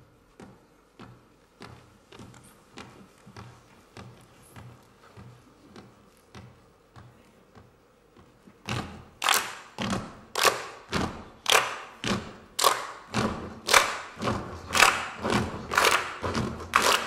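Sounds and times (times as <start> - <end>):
group clapping in unison: 9.2 - 17.0.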